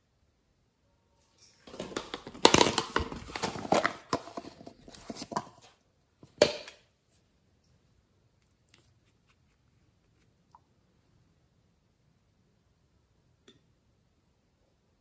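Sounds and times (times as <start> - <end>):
plastic container clattering: 1.6 - 6.8.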